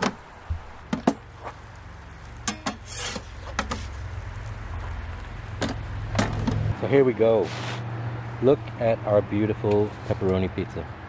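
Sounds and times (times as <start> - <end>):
peel scraping: 2.7 - 4.1
low steady rumble: 3.2 - 7.2.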